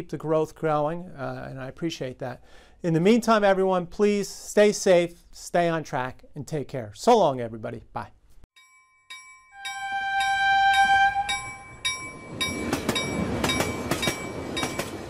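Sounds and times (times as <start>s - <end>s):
crossing bell ringing: 8.6s - 15.0s
train horn: 9.6s - 11.8s
passing train rumble: 9.6s - 15.0s.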